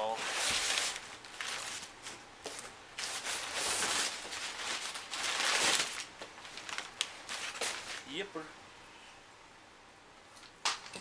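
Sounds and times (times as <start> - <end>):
packaging rustling and scraping: 0.0 - 8.1.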